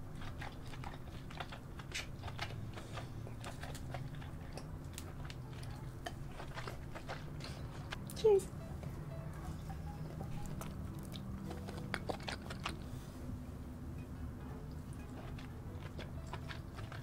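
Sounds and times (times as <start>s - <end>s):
wet mouth eating sounds: 0.0s - 8.2s, 10.1s - 13.0s, 14.7s - 17.0s.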